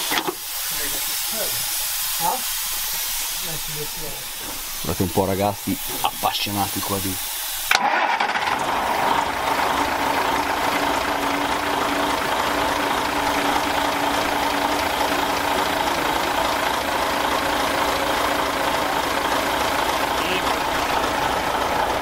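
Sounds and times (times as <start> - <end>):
diesel engine idling: 0.0 - 22.0.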